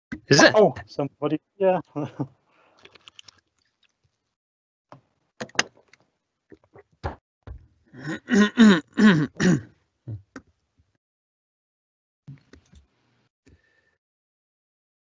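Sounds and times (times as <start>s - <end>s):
man vocalising wordlessly: 0.3s - 0.8s.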